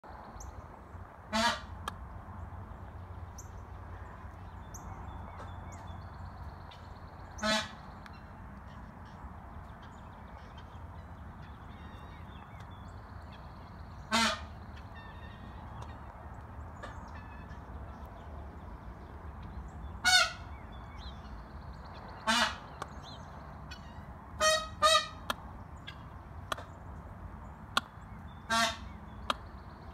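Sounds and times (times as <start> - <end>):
peafowl honking calls: 1.3 - 1.8, 7.3 - 12.6, 13.3 - 18.1, 20.0 - 21.3, 22.1 - 26.7, 27.6 - 29.9.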